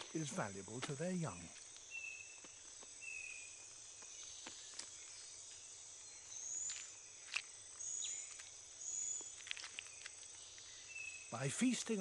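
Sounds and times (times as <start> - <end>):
high-pitched insect drone: 0.0 - 12.0
sharp ticks and rustles: 9.2 - 10.7.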